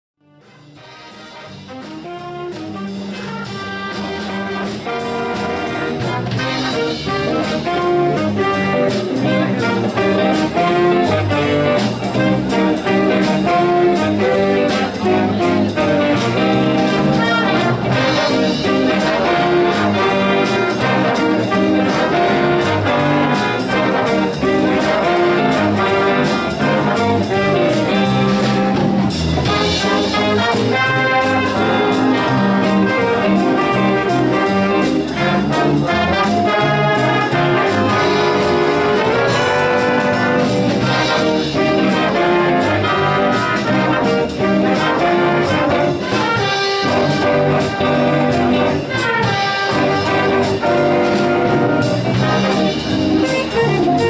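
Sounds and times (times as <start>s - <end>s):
jazz big band playing: 0.2s - 54.0s.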